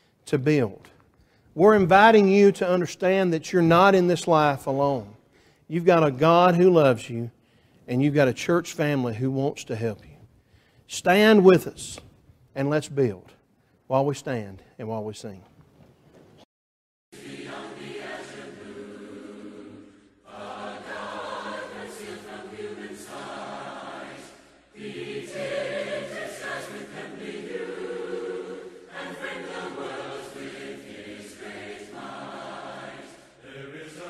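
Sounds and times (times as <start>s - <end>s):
congregation singing a hymn: 17.2s - 34.0s.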